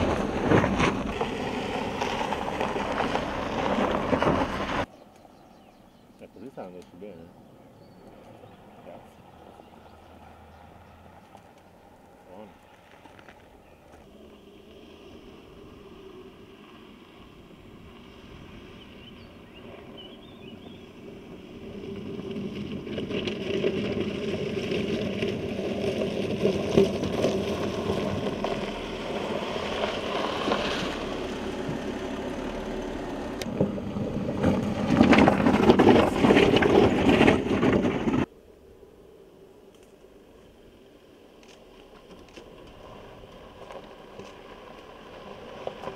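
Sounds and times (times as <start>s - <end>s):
tyres crunching on gravel: 0.0s - 4.9s, 8.1s - 15.3s, 17.5s - 38.3s, 41.4s - 45.9s
car engine running: 17.7s - 35.4s.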